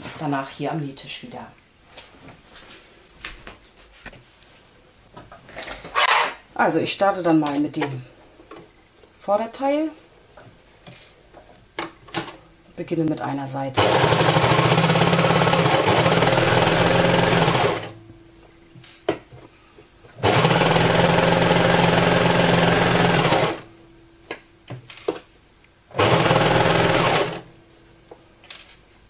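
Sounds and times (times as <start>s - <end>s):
serger sewing machine stitching: 13.8s - 18.0s, 20.2s - 23.7s, 25.9s - 27.5s.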